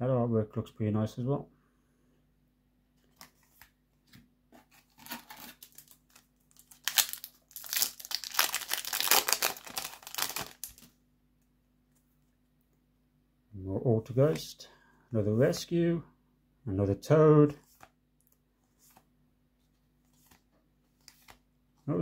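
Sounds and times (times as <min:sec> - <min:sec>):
foil wrapper crinkling and tearing: 0:04.9 - 0:10.9.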